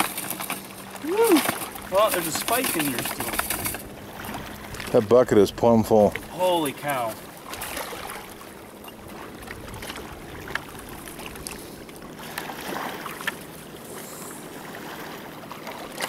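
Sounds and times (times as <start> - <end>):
water: 0.0 - 16.0
wind: 0.0 - 16.0
wire trap clicks and rattles: 1.4 - 3.8.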